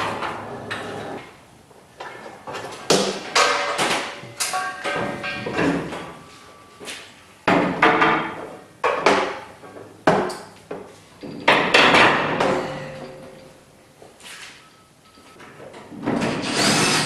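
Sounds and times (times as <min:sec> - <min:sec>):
metal clanks of grinders on rack: 0:11.2 - 0:13.5.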